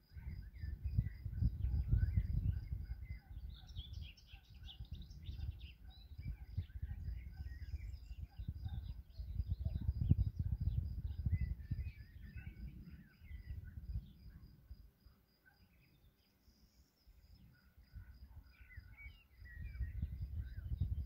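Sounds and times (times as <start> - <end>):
wind rumble on microphone: 0.0 - 15.2, 17.2 - 21.0
insect chirping: 0.0 - 21.0
birds chirping: 0.3 - 14.5, 15.4 - 21.0.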